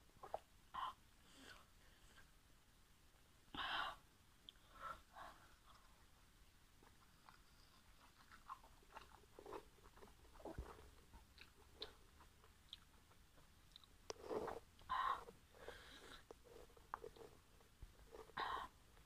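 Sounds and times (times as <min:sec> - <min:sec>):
mouth chewing with wet smacks: 0:06.8 - 0:15.3.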